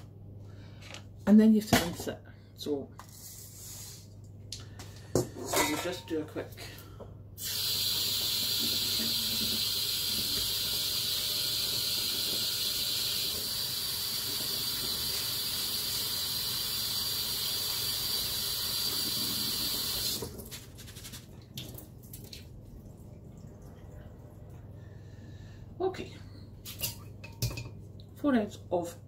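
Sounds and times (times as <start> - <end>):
kitchen tap running: 7.4 - 24.7.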